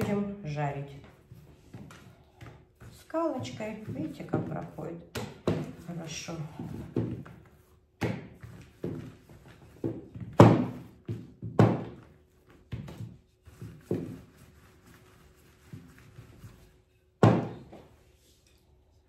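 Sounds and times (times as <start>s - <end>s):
rolling pin knocking on board: 9.8s - 12.1s, 17.2s - 17.7s.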